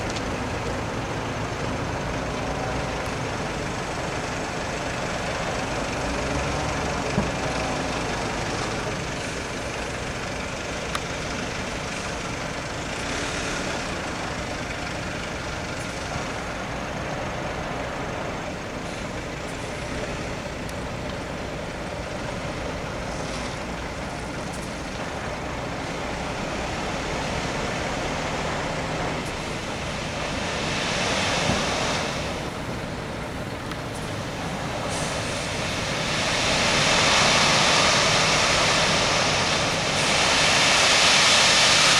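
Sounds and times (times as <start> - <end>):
diesel truck engine and road noise: 0.0 - 41.9
air hiss: 29.3 - 32.6, 34.8 - 41.9.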